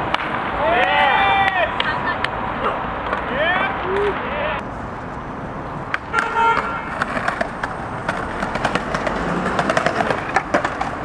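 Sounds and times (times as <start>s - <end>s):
skateboard wheels rolling on stone: 5.8s - 11.0s
skateboard trucks grinding on ledge: 6.0s - 11.0s.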